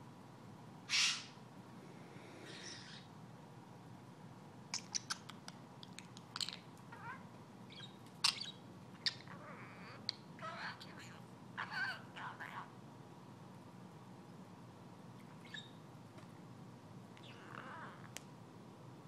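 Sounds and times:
budgerigar squawk: 0:00.9 - 0:01.4
budgerigar chirps and clicks: 0:04.7 - 0:06.6, 0:07.7 - 0:09.4.

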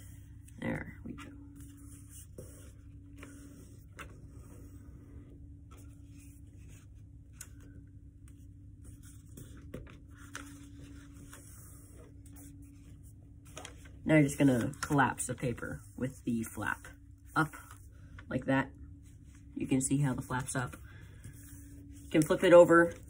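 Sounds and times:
steady low hum: 0:00.0 - 0:23.0
paper rustling and crinkling: 0:08.4 - 0:16.9.

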